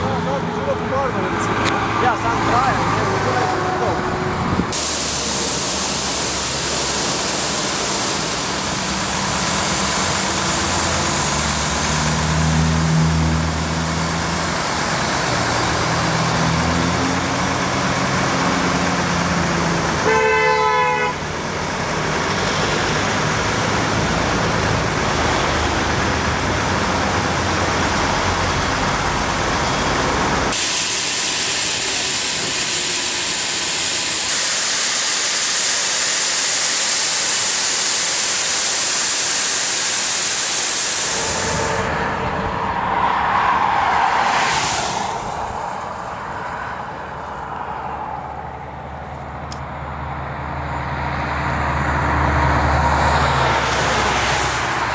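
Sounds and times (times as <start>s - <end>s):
truck engine: 0.0s - 54.9s
vacuum truck suction hiss: 4.6s - 15.2s, 30.2s - 42.0s, 42.8s - 46.5s
vehicle horn: 20.0s - 21.3s.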